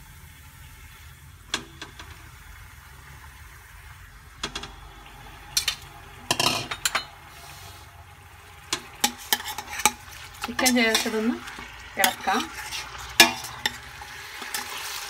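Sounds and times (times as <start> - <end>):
low steady hum: 0.0 - 14.4
knocks and clinks against pot: 5.6 - 7.2, 13.2 - 13.8.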